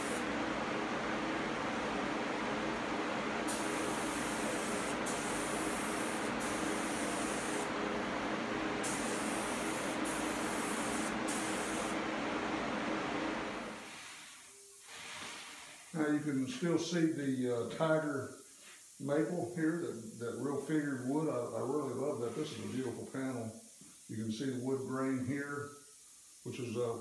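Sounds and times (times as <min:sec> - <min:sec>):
spray gun hissing: 0:00.0 - 0:00.3, 0:03.4 - 0:07.8, 0:08.8 - 0:12.1, 0:13.6 - 0:16.1, 0:18.4 - 0:19.1.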